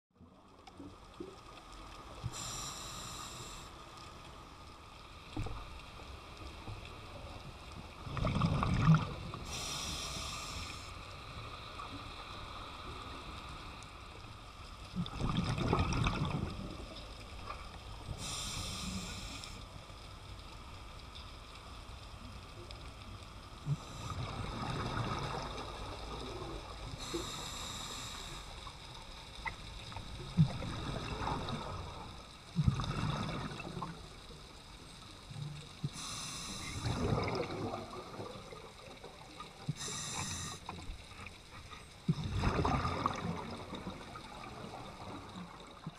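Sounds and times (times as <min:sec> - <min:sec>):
bubbles gurgling underwater: 0:08.0 - 0:09.5, 0:15.0 - 0:16.9, 0:30.1 - 0:34.1, 0:36.8 - 0:40.1, 0:42.1 - 0:45.9
regulator hissing: 0:35.9 - 0:36.9, 0:39.8 - 0:40.7.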